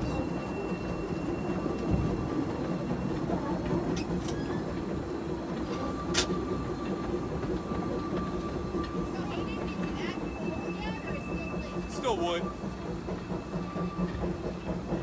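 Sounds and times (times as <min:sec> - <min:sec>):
model steam locomotive rumbling: 0:00.0 - 0:15.0.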